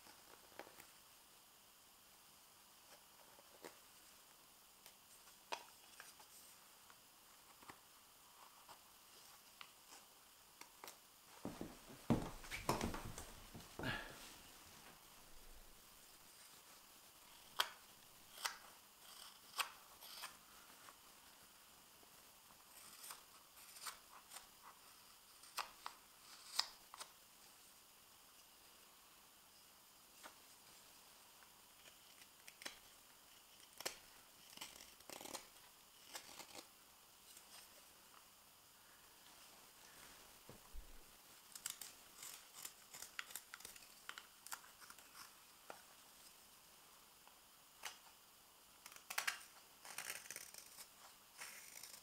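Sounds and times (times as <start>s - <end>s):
knife carving wood: 17.3s - 20.4s, 22.7s - 24.4s, 25.4s - 27.1s, 31.8s - 36.7s, 40.8s - 45.4s, 48.8s - 52.0s.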